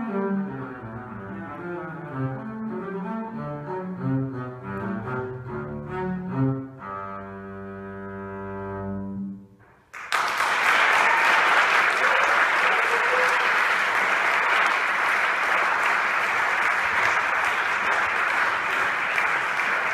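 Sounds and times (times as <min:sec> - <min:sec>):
bowed double bass note: 0:00.0 - 0:09.5
audience applause: 0:09.9 - 0:19.9.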